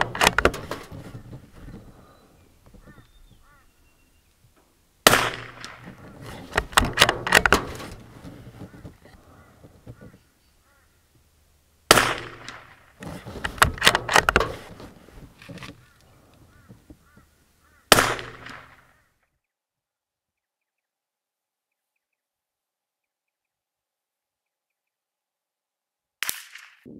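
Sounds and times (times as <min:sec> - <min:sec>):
rifle bolt metallic clicks: 0:00.0 - 0:00.9, 0:06.5 - 0:08.1, 0:13.4 - 0:14.7
rifle shots with echo: 0:05.0 - 0:05.9, 0:11.9 - 0:12.9, 0:17.9 - 0:18.9.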